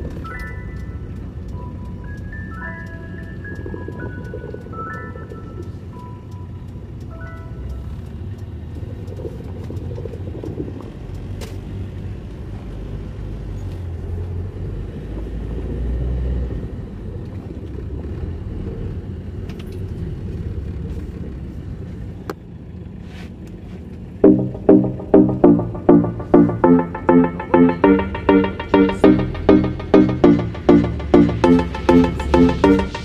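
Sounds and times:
engine and road rumble: 0.0s - 24.2s
music with strong beat: 24.2s - 33.0s.

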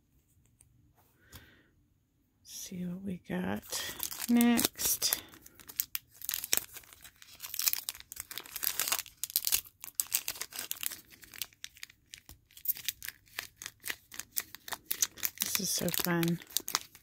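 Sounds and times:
plastic wrapper crinkling and tearing: 3.6s - 17.0s.

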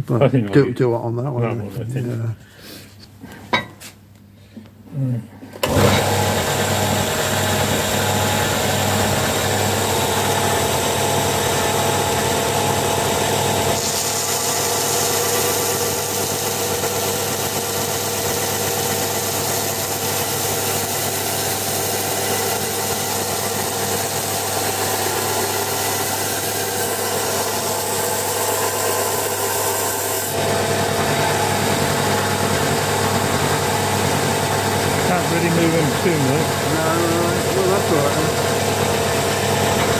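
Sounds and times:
belt sander motor hum: 5.6s - 39.9s
wood rasping on sanding belt: 13.7s - 30.4s.

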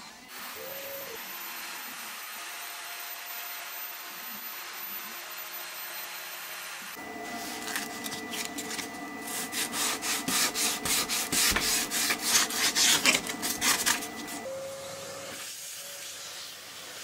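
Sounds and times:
sandpaper rubbing on wood: 7.4s - 14.4s.

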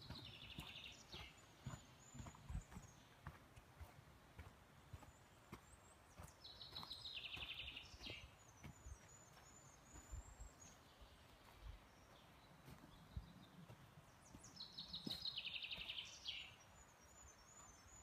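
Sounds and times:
footsteps on forest floor: 0.0s - 16.5s
songbird trill: 0.0s - 18.0s.

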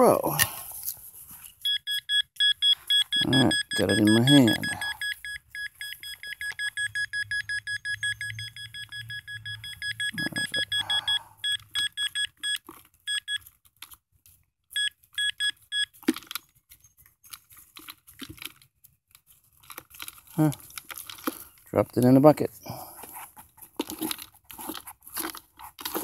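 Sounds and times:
pinpointer beeping rapidly: 1.7s - 13.4s.

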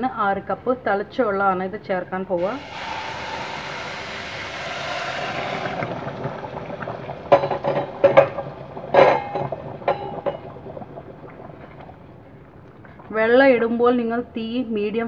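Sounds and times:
boiling water hissing on rice: 2.4s - 13.1s.

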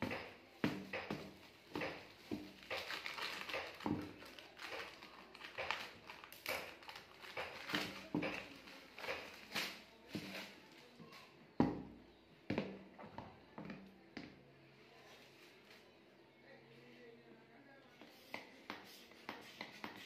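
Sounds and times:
scissors cutting plastic: 1.0s - 10.6s
plastic wrapping crinkling: 1.4s - 11.2s.

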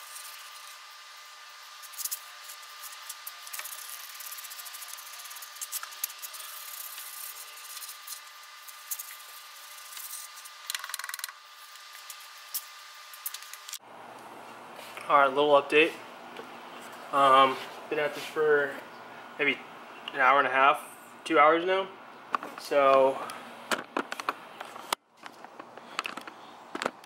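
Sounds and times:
brush scrubbing metal: 1.8s - 10.5s.

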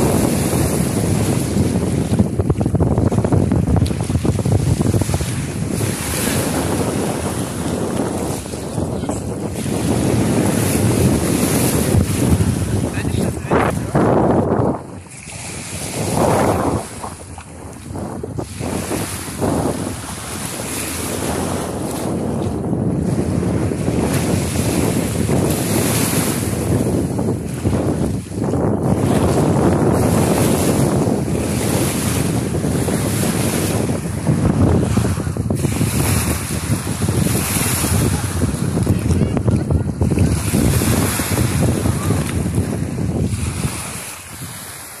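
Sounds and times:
small waves washing on sand: 0.0s - 45.0s
wind buffeting microphone: 0.0s - 45.0s.

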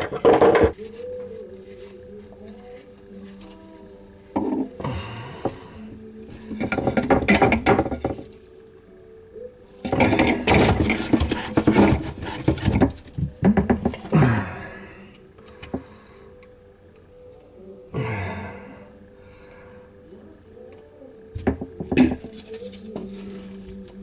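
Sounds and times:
plastic pipe fittings clattering: 6.4s - 8.3s, 9.8s - 14.1s
dauber knocking in a metal can: 6.6s - 8.2s.

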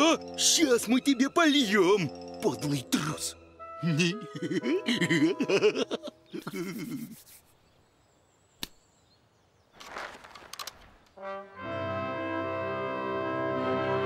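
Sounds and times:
sharp click: 8.6s - 8.8s.

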